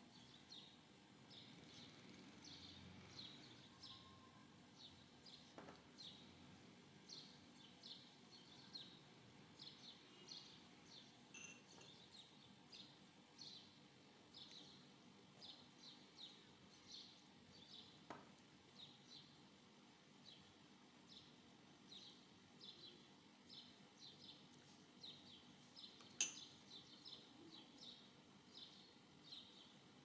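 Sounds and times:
faint bird chirping: 0:00.0 - 0:06.4, 0:07.0 - 0:18.0, 0:20.2 - 0:29.8
low steady hiss: 0:00.0 - 0:30.0.

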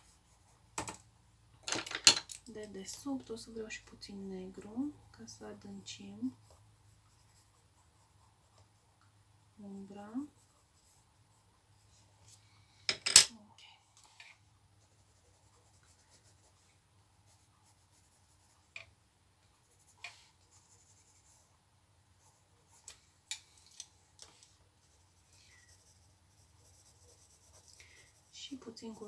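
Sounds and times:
brush scratching on paper: 0:00.0 - 0:00.6, 0:06.2 - 0:08.9, 0:14.8 - 0:18.8, 0:19.5 - 0:23.0, 0:24.8 - 0:29.0
faint low hum: 0:00.0 - 0:29.0.

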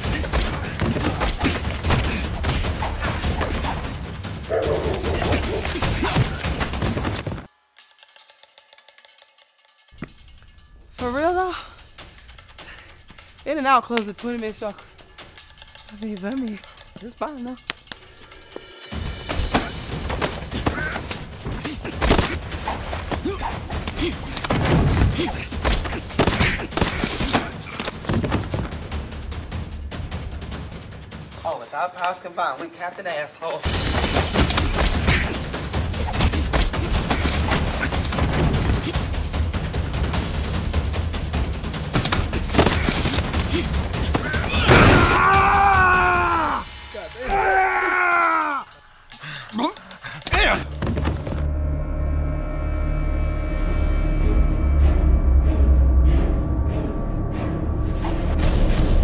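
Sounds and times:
fight hits and smacks: 0:00.0 - 0:03.9, 0:19.3 - 0:28.8, 0:33.7 - 0:39.0, 0:41.9 - 0:45.5
punches and body blows: 0:00.0 - 0:04.0, 0:04.9 - 0:07.5, 0:19.3 - 0:28.9, 0:33.7 - 0:39.1, 0:41.9 - 0:46.0.

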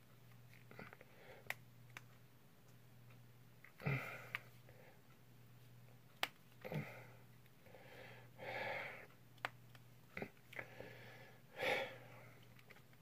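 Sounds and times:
heavy breaths through nose: 0:06.6 - 0:09.1, 0:10.5 - 0:12.5.

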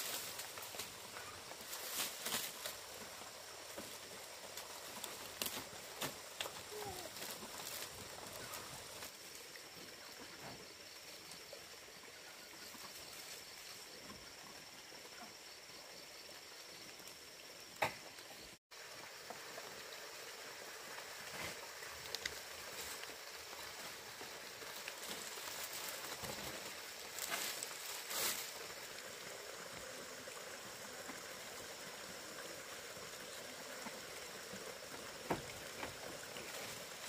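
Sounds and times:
dry leaves rustling and crackling: 0:00.0 - 0:09.4, 0:21.6 - 0:28.9.

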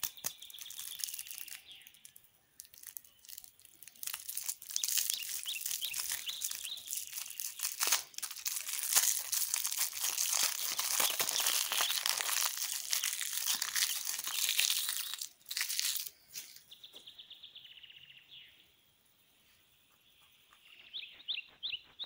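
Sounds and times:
plastic wrapper crinkling: 0:00.0 - 0:16.7.

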